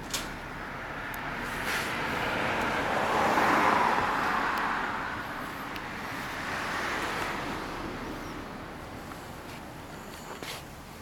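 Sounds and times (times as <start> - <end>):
vehicle passing by: 0.6 - 9.4.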